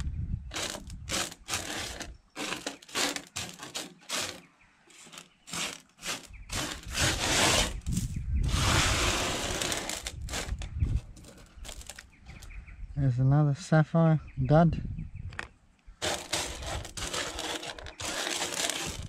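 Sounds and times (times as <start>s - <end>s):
gravel scraping on metal: 0.0s - 12.5s, 16.0s - 19.0s.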